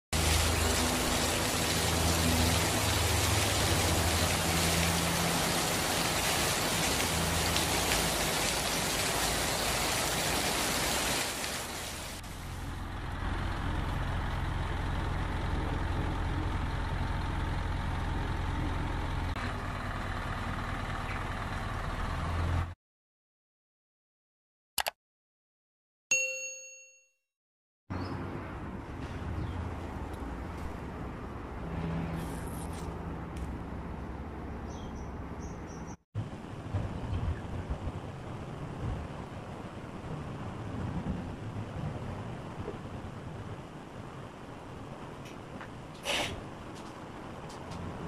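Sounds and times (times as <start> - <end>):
diesel engine idling: 12.3 - 22.7.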